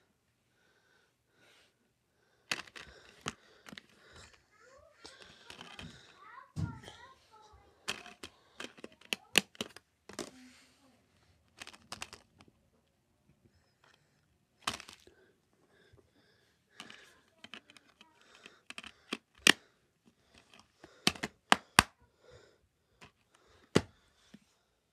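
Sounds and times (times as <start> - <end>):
plastic cases clicking: 2.5 - 4.3, 5.0 - 6.1, 7.9 - 10.3, 11.5 - 12.5, 14.6 - 15.1, 16.8 - 19.6, 20.3 - 21.9.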